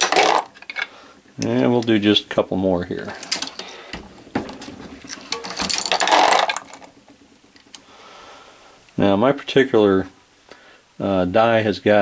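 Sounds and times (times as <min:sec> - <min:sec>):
reloading press clanking: 0:03.1 - 0:07.8.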